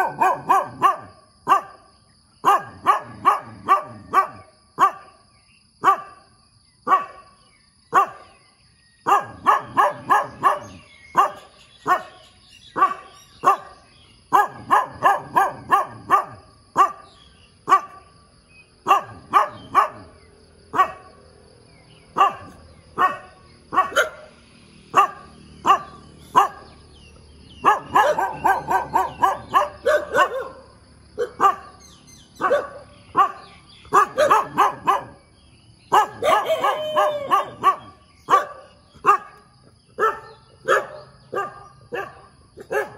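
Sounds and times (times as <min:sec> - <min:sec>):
dog barking: 0:00.0 - 0:05.2, 0:05.8 - 0:07.3, 0:07.9 - 0:08.3, 0:09.0 - 0:18.1, 0:18.8 - 0:21.2, 0:22.1 - 0:24.3, 0:24.9 - 0:26.8, 0:27.6 - 0:31.8, 0:32.4 - 0:35.2, 0:35.9 - 0:42.9.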